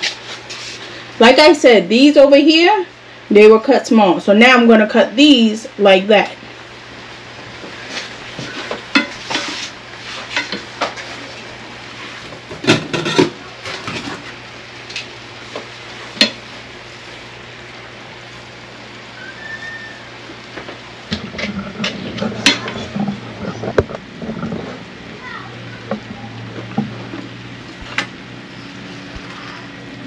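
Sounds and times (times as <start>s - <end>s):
meat sizzling: 6.5s - 25.2s.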